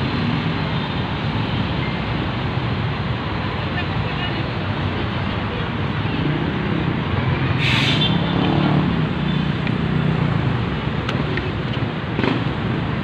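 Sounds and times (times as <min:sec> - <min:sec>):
vehicle engines humming: 0:00.0 - 0:13.0
short hiss: 0:07.6 - 0:08.2.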